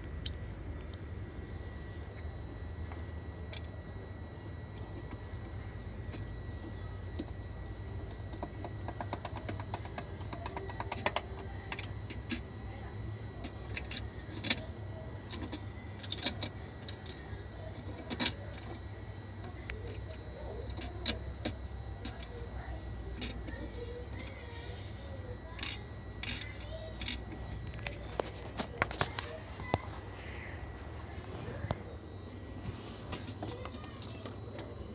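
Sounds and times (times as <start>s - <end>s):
screwdriver clicking on metal: 7.2s - 12.4s, 25.5s - 29.8s.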